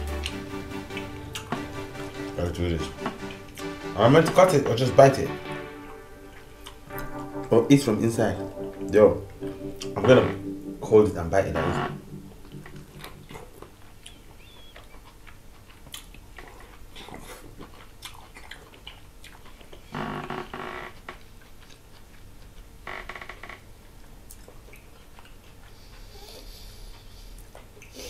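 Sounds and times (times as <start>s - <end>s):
biting and chewing: 14.1s - 19.9s, 20.9s - 22.8s.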